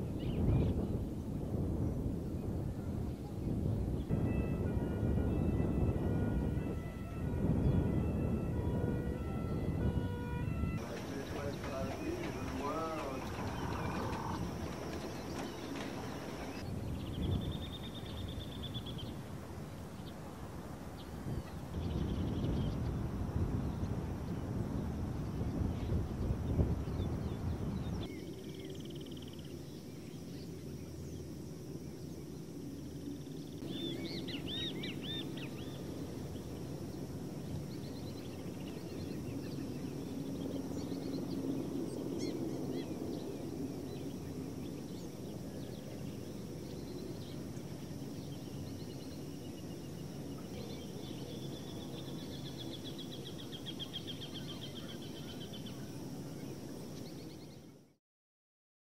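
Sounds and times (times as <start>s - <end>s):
birds chirping: 10.7s - 19.2s
bird rapid trill: 10.8s - 16.6s
low outdoor rumble: 10.8s - 21.9s.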